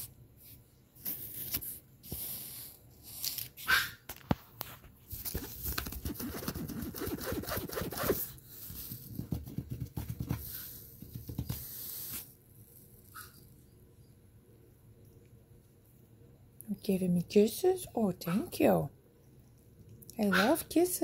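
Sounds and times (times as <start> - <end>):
plastic liner crinkling and rustling: 3.2 - 8.4.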